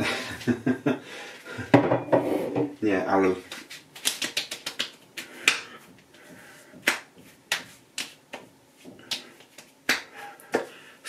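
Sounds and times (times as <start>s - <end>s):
hands slapping face: 3.5s - 10.8s.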